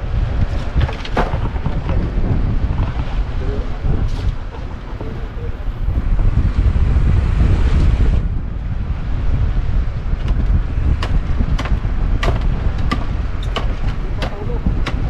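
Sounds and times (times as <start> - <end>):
wind buffeting microphone: 0.0 - 15.0
sharp knocks: 10.2 - 15.0.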